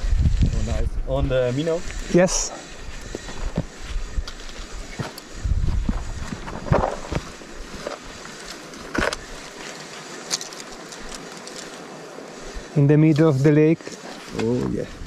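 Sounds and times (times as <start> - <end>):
wind buffeting microphone: 0.0 - 7.8
rustles and knocks: 3.1 - 11.8.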